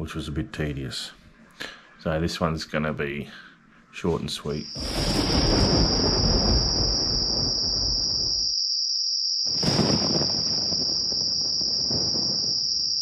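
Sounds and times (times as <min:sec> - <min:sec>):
high-pitched insect-like whine: 0:04.6 - 0:13.0
low noisy rustle: 0:04.7 - 0:08.5, 0:09.5 - 0:12.9.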